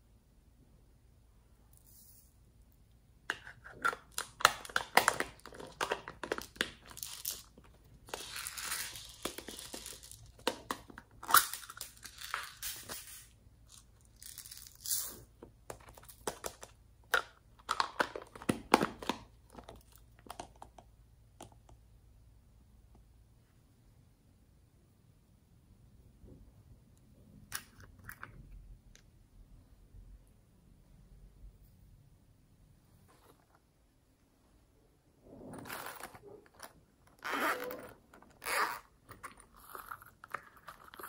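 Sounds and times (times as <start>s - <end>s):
plastic lids clicking and crinkling: 3.3s - 13.2s, 15.4s - 21.6s.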